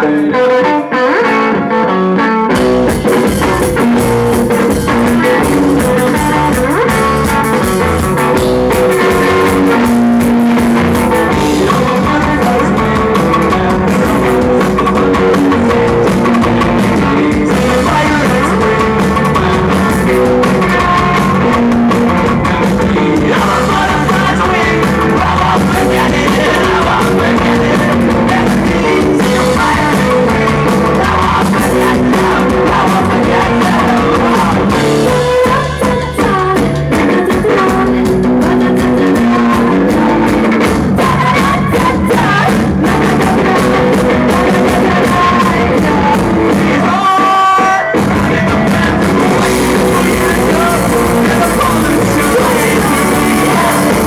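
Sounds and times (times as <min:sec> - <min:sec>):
bass guitar: 0:00.0 - 0:54.0
drum kit: 0:00.0 - 0:54.0
electric guitars: 0:00.0 - 0:54.0
person singing: 0:00.0 - 0:54.0.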